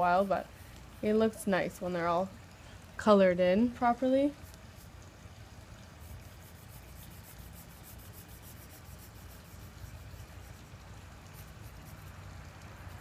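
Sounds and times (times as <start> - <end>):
low steady hum: 0.0 - 13.0
marker rubbing on paper: 6.1 - 12.1.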